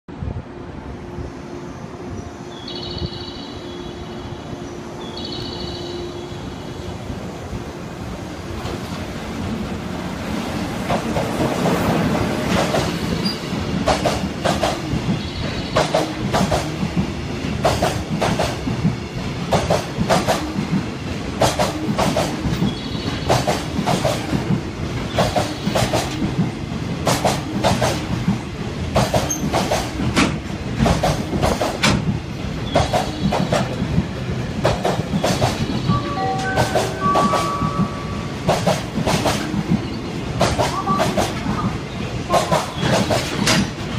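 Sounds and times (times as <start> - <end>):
wheels clacking over rail joints: 10.7 - 43.9.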